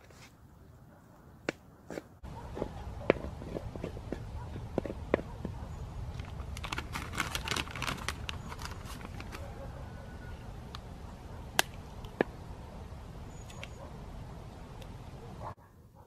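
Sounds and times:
plastic bag crinkling: 6.1 - 9.5.

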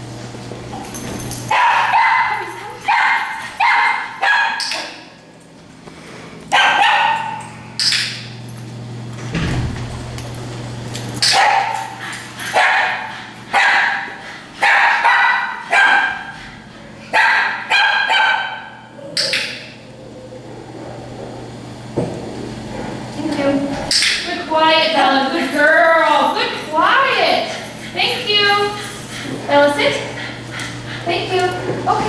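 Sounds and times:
steady low hum: 0.0 - 32.0
dogs barking: 1.4 - 5.1, 6.5 - 8.0, 11.2 - 21.0.

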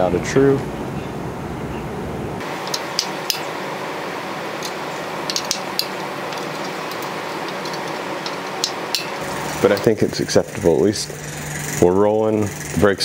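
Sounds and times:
spoke wrench clicking on spokes: 2.4 - 3.7, 4.6 - 11.8
steady hiss: 2.4 - 13.0.

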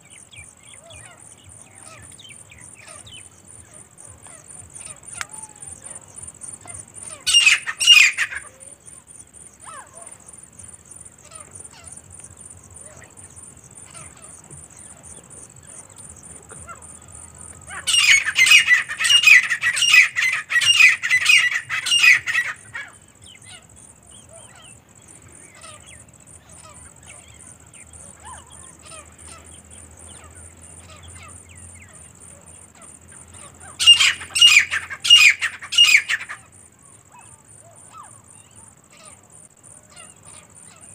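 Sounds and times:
francolins calling: 0.0 - 40.9.

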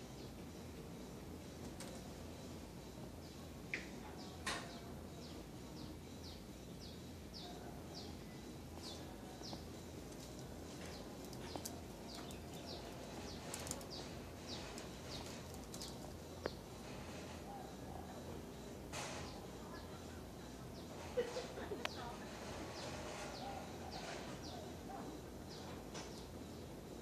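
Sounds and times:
small bird chirping: 1.8 - 16.8.

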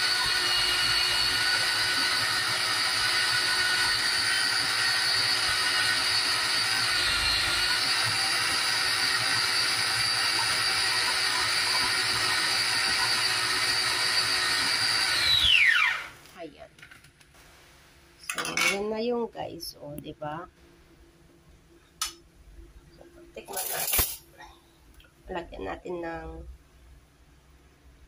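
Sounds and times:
food chopper motor whine: 0.0 - 16.2.

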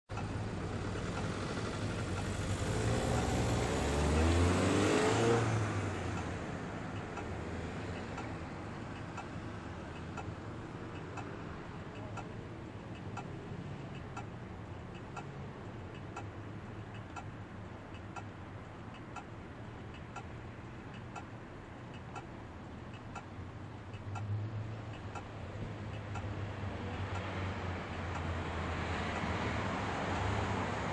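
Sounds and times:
crossing signal ticking: 0.1 - 30.9
low traffic rumble: 0.1 - 30.9
vehicle passing: 0.4 - 12.2, 24.2 - 30.9.

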